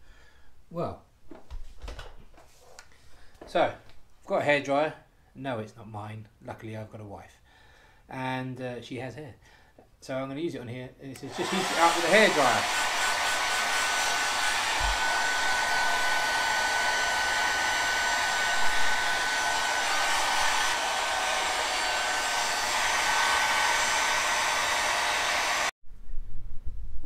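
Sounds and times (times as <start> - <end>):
hair dryer blowing: 11.2 - 25.8.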